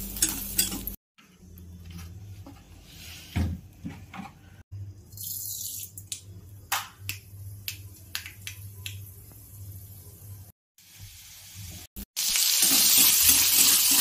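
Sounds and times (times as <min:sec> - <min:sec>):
oil crackling in a wok: 0:12.2 - 0:14.0.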